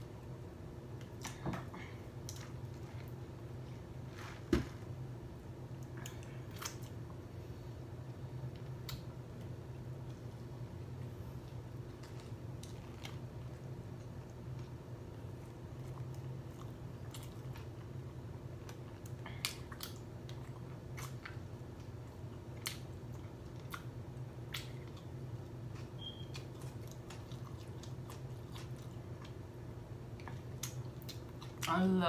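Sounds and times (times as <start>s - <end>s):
person chewing food: 8.0s - 31.7s.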